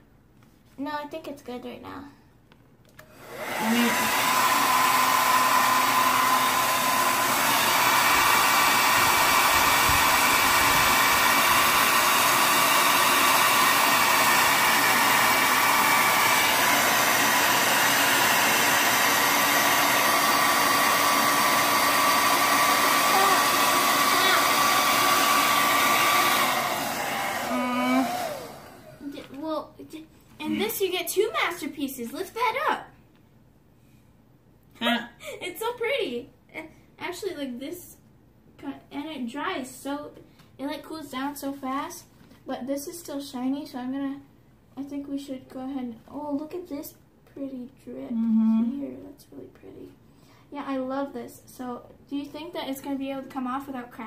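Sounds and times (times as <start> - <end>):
hair dryer running: 3.0 - 29.1.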